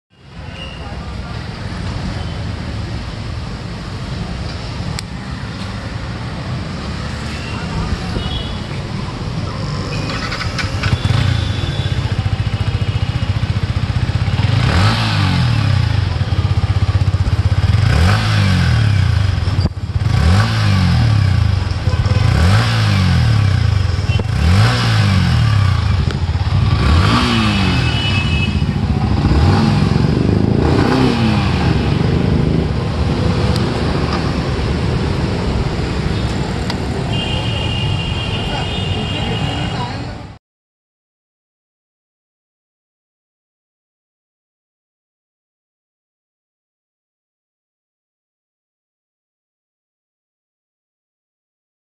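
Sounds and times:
motorcycle engine idling and revving: 0.2 - 40.4.

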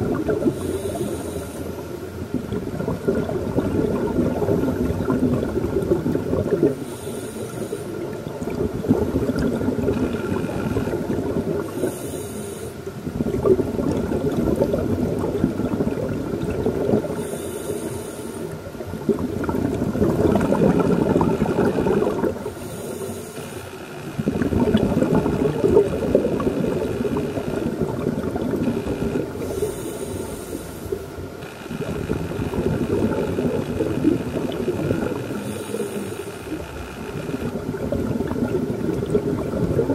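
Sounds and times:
hissing regulator inhalations: 0.4 - 2.0, 6.7 - 8.2, 11.6 - 13.0, 17.1 - 18.7, 22.4 - 24.0, 29.4 - 31.6, 35.2 - 36.7
bubbling exhalations underwater: 2.3 - 6.8, 8.2 - 11.9, 13.0 - 17.3, 18.8 - 22.5, 24.2 - 29.6, 31.7 - 35.9, 37.4 - 39.9.

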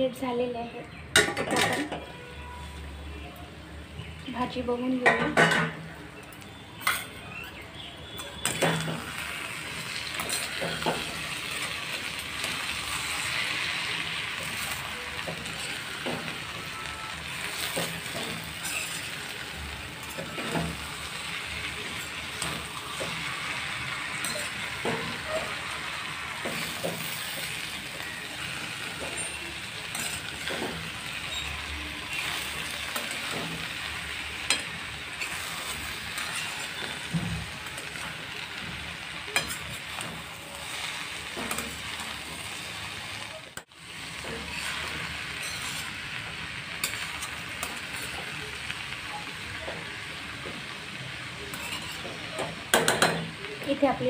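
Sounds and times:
vegetables sizzling in a pan: 0.0 - 54.0
spatula scraping and clinking pan: 6.8 - 19.3, 20.0 - 42.6, 44.2 - 48.4, 51.5 - 53.3.

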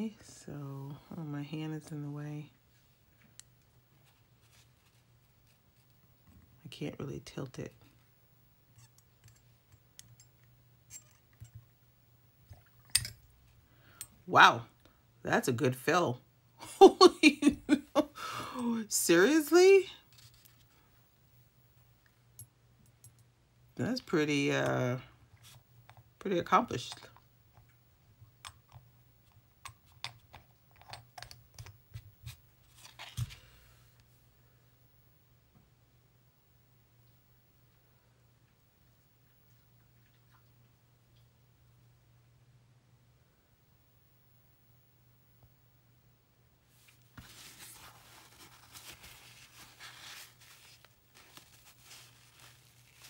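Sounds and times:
paper towel rustling: 46.8 - 53.0.

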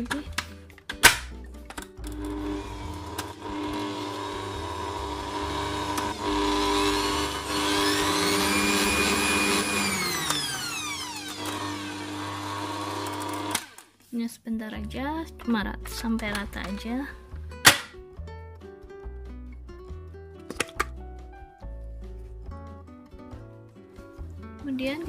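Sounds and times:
stand mixer motor whining: 2.1 - 13.9.

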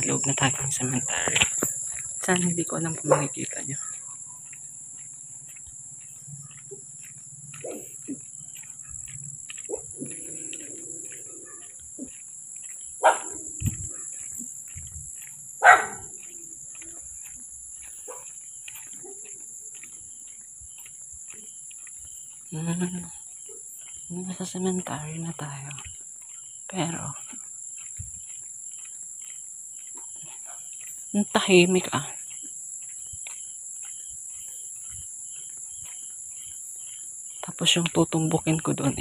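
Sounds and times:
night insects chorus: 0.0 - 39.0
dog barking: 7.5 - 8.2, 9.6 - 11.8, 13.0 - 13.4, 15.6 - 16.3, 18.0 - 19.4.

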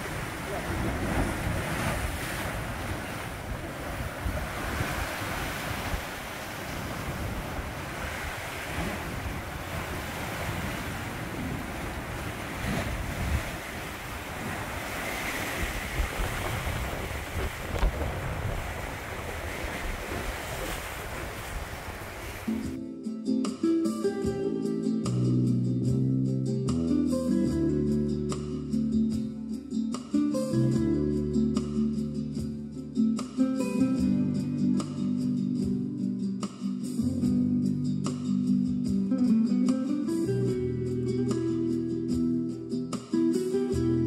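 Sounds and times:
wind buffeting microphone: 0.0 - 22.7
sea waves washing on rocks: 0.0 - 22.8.

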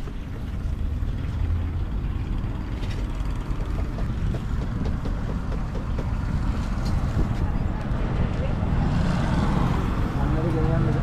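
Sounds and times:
wind buffeting microphone: 2.4 - 10.0.

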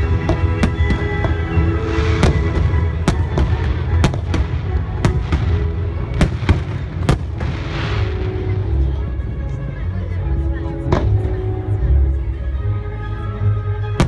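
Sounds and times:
fireworks bursting with sharp bangs: 0.0 - 8.6
music: 0.0 - 14.0.

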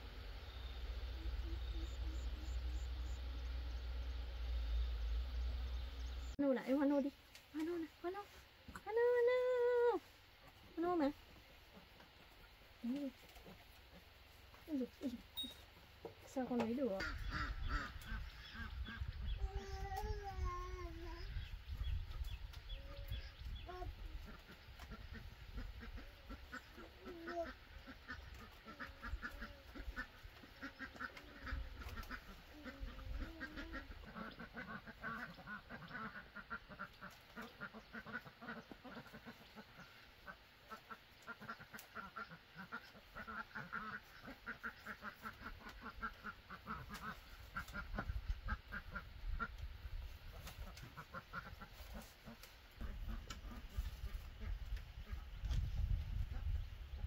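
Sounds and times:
ducks quacking: 16.8 - 19.4, 22.9 - 49.7, 50.3 - 55.4.

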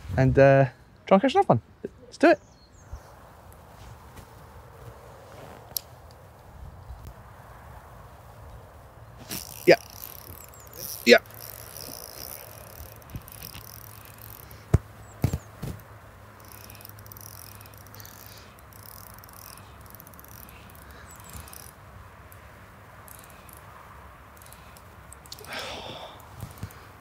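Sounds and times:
fishing reel clicking: 9.3 - 14.6, 16.4 - 22.4, 23.0 - 23.7, 24.3 - 25.6.

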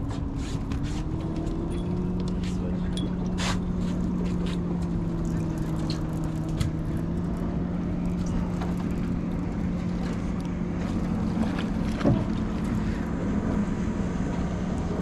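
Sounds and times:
boat motor humming: 0.0 - 15.0
wind and water noise: 0.0 - 15.0.

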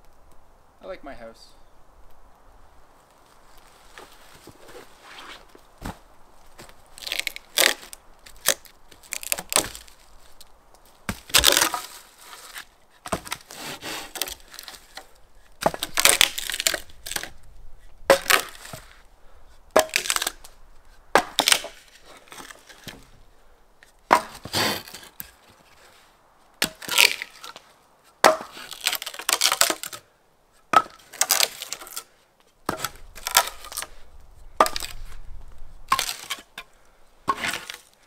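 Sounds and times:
rough scraping of wood: 3.4 - 19.1, 19.7 - 23.2, 24.1 - 30.0, 30.7 - 32.1, 32.7 - 38.0
wood cracking and snapping: 6.5 - 17.5, 18.1 - 19.0, 19.7 - 23.1, 26.6 - 27.6, 28.2 - 30.0, 30.7 - 32.1, 32.7 - 33.9, 34.6 - 36.7.

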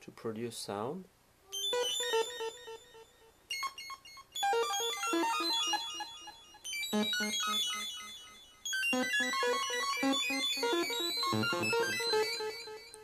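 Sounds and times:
sawtooth synthesizer notes: 3.6 - 13.0.

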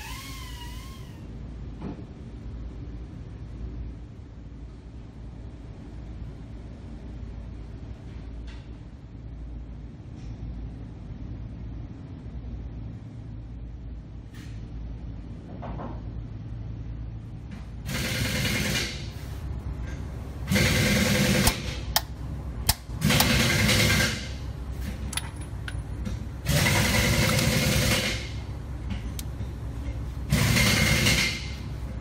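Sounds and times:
pneumatic ratchet running: 0.0 - 1.3, 22.7 - 24.4, 26.4 - 28.4, 30.3 - 31.6.

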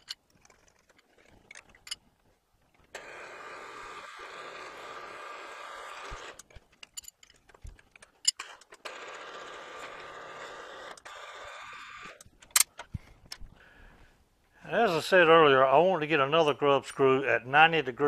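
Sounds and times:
metal chips clicking and clinking: 0.0 - 2.1, 6.4 - 8.9
drill spindle humming: 2.9 - 6.5, 8.6 - 12.3.

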